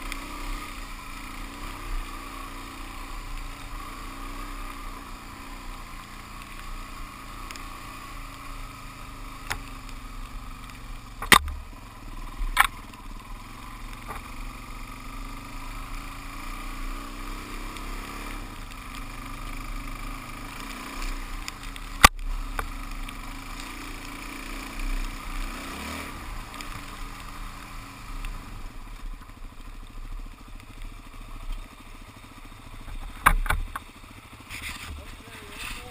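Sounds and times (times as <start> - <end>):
motorcycle engine running: 0.0 - 35.9
sharp knocks: 11.2 - 11.6.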